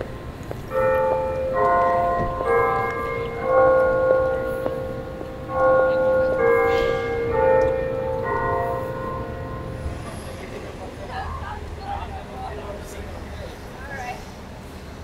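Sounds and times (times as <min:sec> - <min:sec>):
bells chiming: 0:00.0 - 0:10.1.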